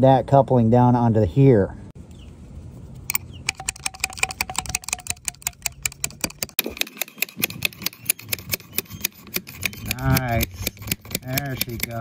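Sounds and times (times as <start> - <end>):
wrench tapping on copper pipe: 3.5 - 7.6, 9.3 - 12.0.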